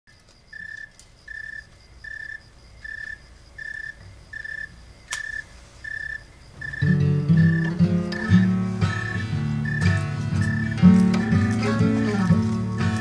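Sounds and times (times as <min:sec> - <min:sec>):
cricket chirping: 0:00.1 - 0:13.0
sharp click: 0:05.1 - 0:05.3.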